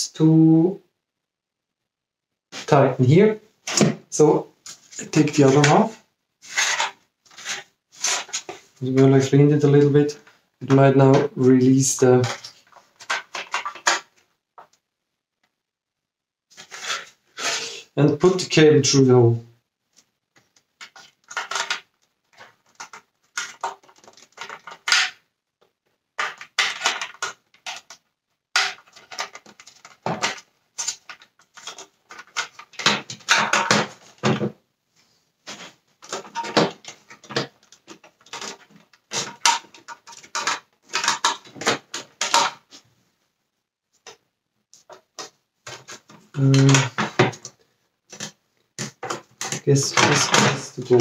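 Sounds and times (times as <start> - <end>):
plastic parts clicking and knocking: 3.6 - 15.6, 20.0 - 34.6, 35.5 - 42.8, 44.0 - 51.0.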